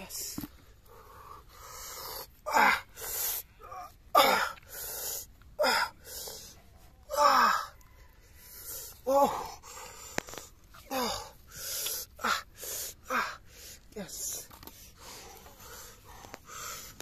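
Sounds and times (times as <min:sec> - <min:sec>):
person breathing hard: 0:00.6 - 0:17.0
person groaning with effort: 0:02.4 - 0:04.7, 0:05.6 - 0:06.1, 0:07.1 - 0:07.7, 0:09.0 - 0:09.7, 0:10.8 - 0:11.4, 0:13.0 - 0:14.5.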